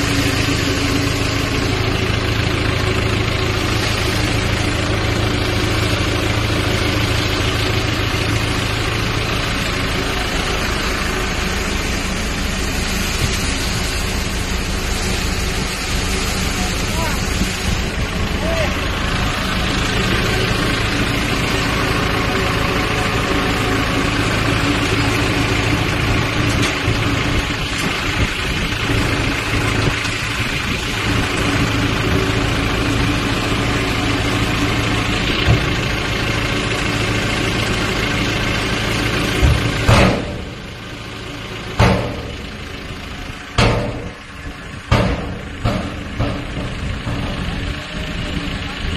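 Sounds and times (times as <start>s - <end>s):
diesel truck engine running: 0.0s - 48.9s
metal clanks: 43.5s - 47.9s
tailgate banging shut: 44.9s - 47.2s.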